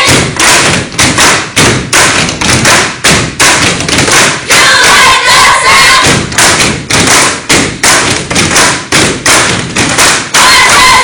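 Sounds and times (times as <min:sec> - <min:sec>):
stomps and body slaps: 0:00.0 - 0:05.1, 0:05.8 - 0:11.0.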